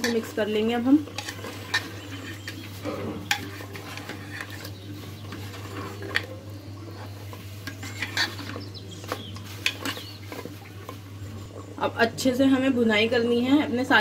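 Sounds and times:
ladle scraping metal pot: 0:00.0 - 0:11.2.

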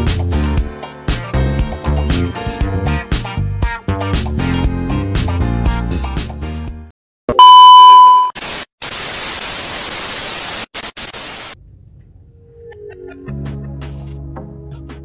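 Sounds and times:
loud electronic beep: 0:07.4 - 0:08.4.

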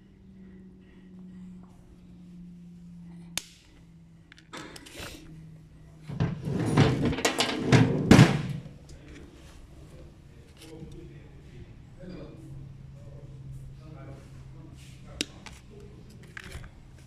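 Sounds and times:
steady low hum: 0:00.0 - 0:17.0
tools handled on a workbench: 0:06.1 - 0:09.2.

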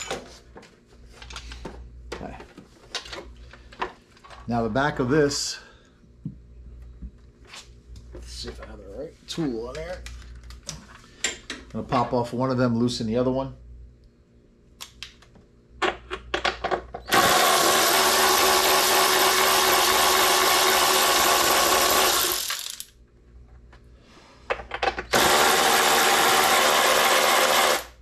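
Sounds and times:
cordless power ratchet running: 0:17.1 - 0:22.9, 0:25.1 - 0:28.0.

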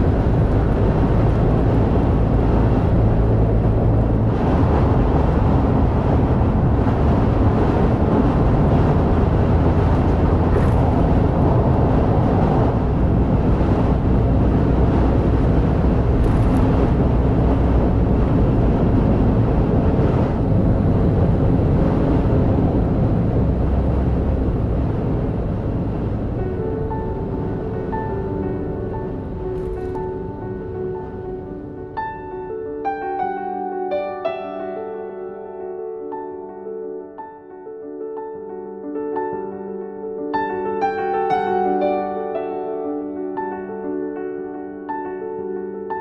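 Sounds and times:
car driving low rumble: 0:00.0 - 0:32.2.

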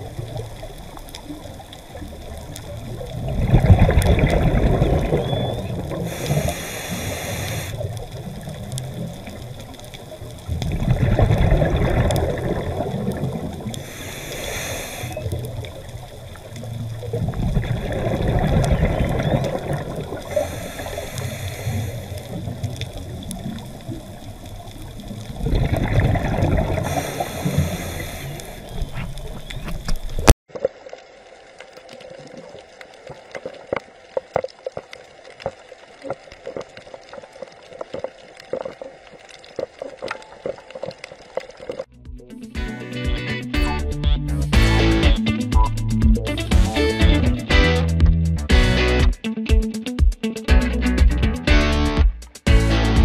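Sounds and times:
exhaled air bubbling: 0:00.0 - 0:31.1, 0:31.7 - 0:41.9
faint underwater clicks: 0:00.0 - 0:41.9
regulator inhale hiss: 0:06.0 - 0:08.1, 0:13.7 - 0:15.4, 0:20.1 - 0:23.1, 0:26.8 - 0:29.0.

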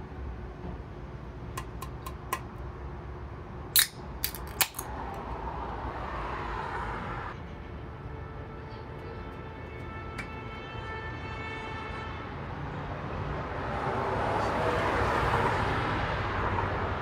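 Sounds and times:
can seal cracking: 0:03.8 - 0:04.9.

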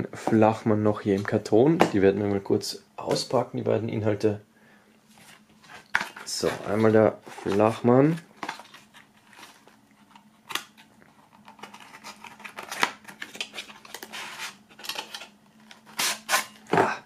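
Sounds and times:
cardboard rustling and scraping: 0:05.1 - 0:10.3, 0:11.1 - 0:16.7.

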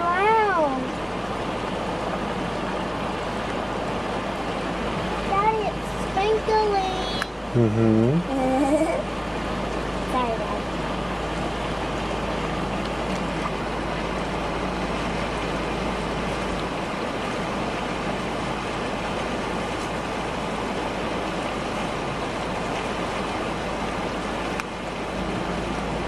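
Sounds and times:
floodwater rushing: 0:00.0 - 0:26.0.

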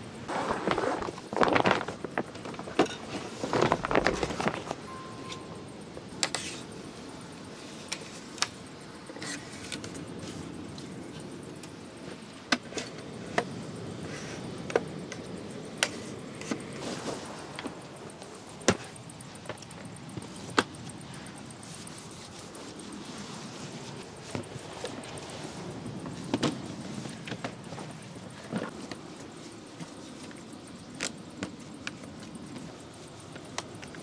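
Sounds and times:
steady background hiss: 0:00.0 - 0:34.0
rustling handling noise: 0:00.3 - 0:05.6.

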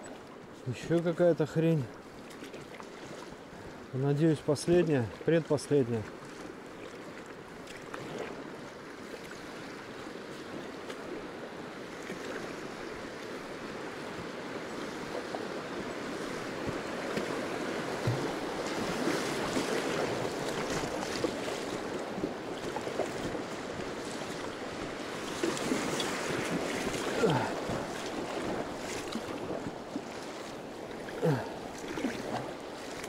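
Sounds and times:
choppy river water rushing: 0:00.0 - 0:33.0
paddle splashes: 0:00.0 - 0:33.0.

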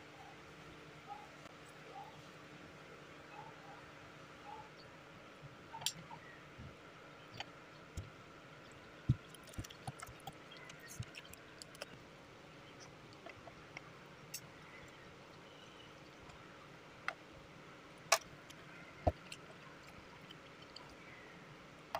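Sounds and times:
person chewing sticky rice: 0:09.1 - 0:12.0.

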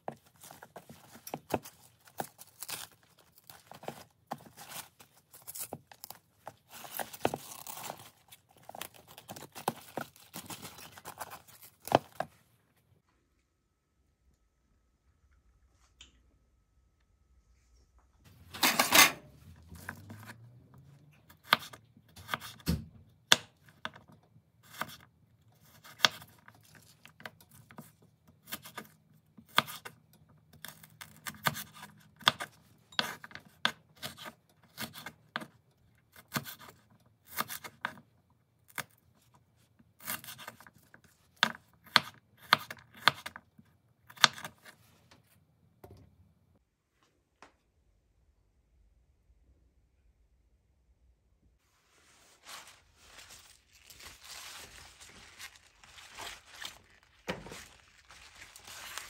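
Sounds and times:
knife cutting crunchy stems: 0:00.3 - 0:12.3, 0:53.1 - 0:59.0.

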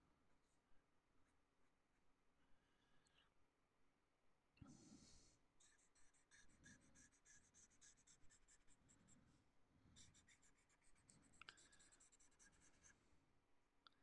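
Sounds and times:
felt-tip marker scratching on paper: 0:05.6 - 0:09.2, 0:10.0 - 0:13.0.

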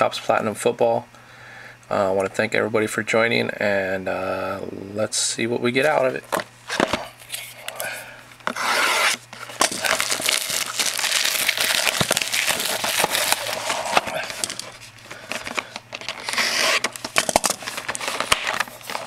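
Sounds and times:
plastic shrink wrap crinkling: 0:08.5 - 0:19.0.

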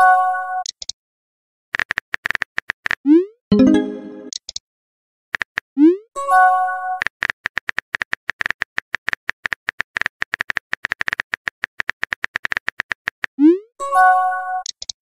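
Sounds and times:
rising swoop and chime: 0:03.5 - 0:04.3.

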